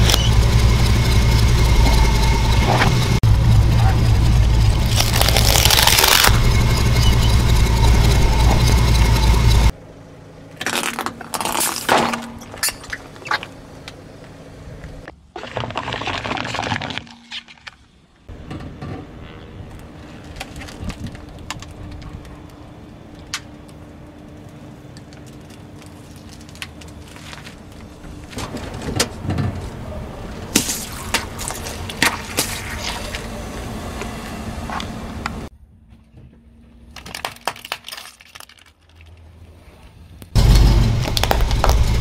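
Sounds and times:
low steady rumble: 0.0s - 11.4s
sharp cracks and pops: 4.8s - 6.3s, 36.9s - 39.2s, 41.0s - 42.0s
paper cups crunching: 4.9s - 6.3s, 15.4s - 17.8s.

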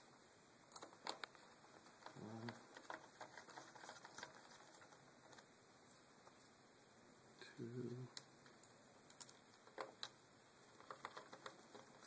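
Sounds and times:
tiny screws clicking: 8.2s - 12.0s.

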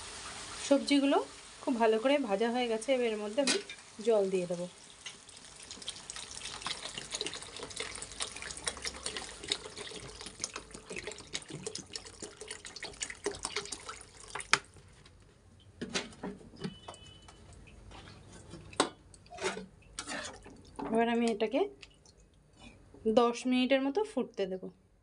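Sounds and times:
water splashing into pan: 3.0s - 14.7s.

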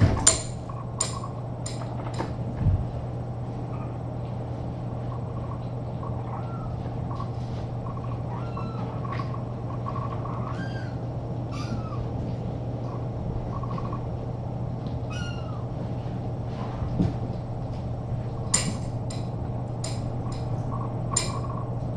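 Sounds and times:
steady low hum: 0.0s - 21.9s
cat meowing: 6.2s - 6.8s, 8.3s - 9.2s, 10.3s - 12.2s, 15.1s - 15.6s.

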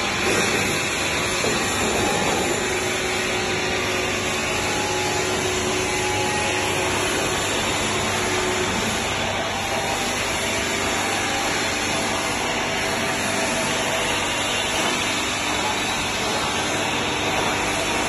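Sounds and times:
machine humming: 0.0s - 18.0s.

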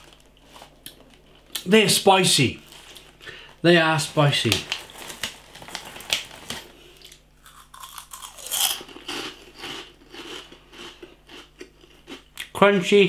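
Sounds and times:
crunching crisps: 4.0s - 12.2s.

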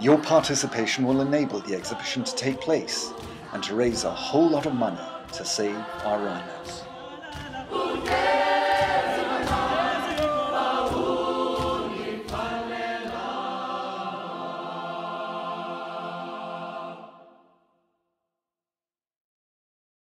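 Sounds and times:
sharp percussive beats: 0.0s - 14.9s
choir singing: 0.0s - 17.7s.

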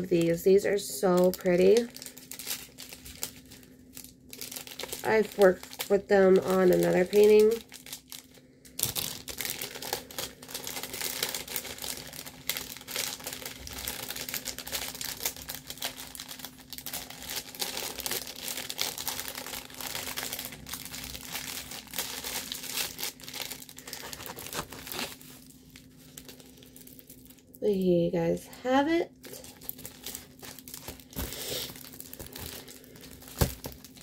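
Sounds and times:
plastic packaging crinkling: 0.0s - 27.7s, 29.2s - 34.0s.

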